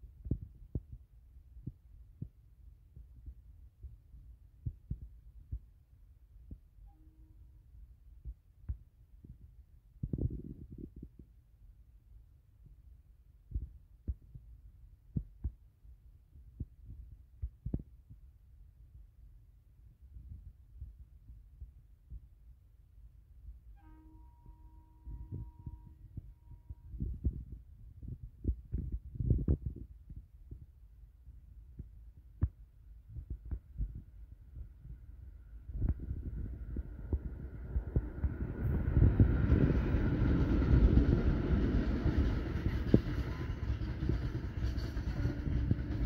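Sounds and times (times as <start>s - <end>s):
train rumbling with thumps: 23.8s - 29.7s, 33.1s - 46.0s
wind buffeting microphone: 26.9s - 30.7s, 33.1s - 46.0s.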